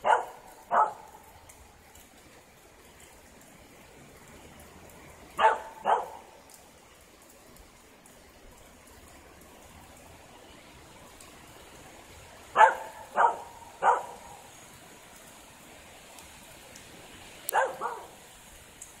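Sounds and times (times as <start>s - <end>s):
dog barking: 0.0s - 1.3s, 5.4s - 6.3s, 12.5s - 14.5s, 17.5s - 18.2s
rain hissing: 0.0s - 19.0s.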